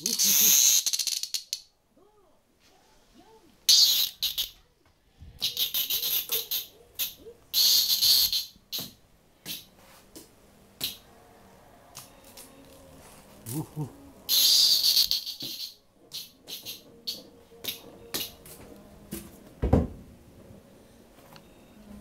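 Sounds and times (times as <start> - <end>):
cicada buzzing: 0.0 - 1.4, 3.7 - 4.6, 5.5 - 8.9, 14.3 - 17.2.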